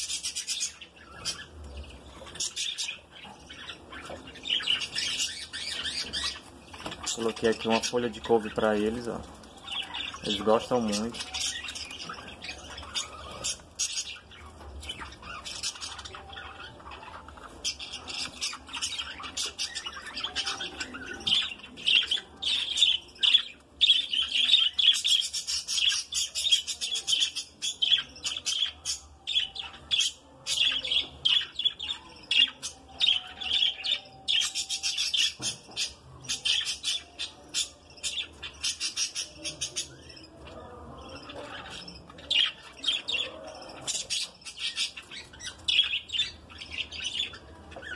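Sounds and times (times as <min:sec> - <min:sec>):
budgerigars chattering and chirping: 0:00.0 - 0:47.9.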